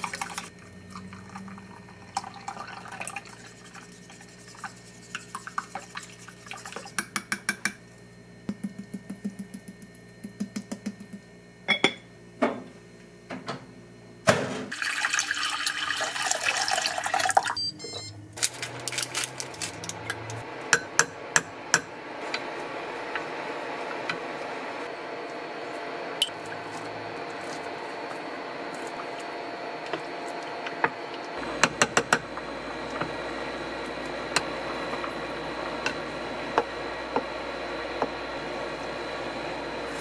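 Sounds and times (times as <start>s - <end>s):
wooden spoon stirring: 3.0s - 7.0s.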